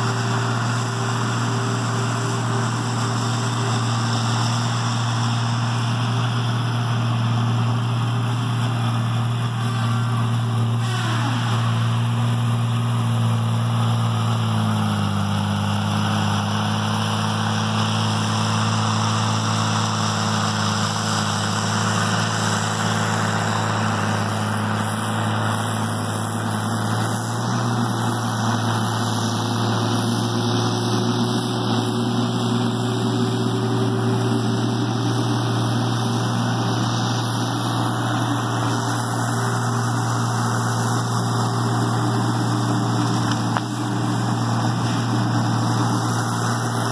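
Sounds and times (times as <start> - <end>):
diesel engine running: 0.0 - 46.9.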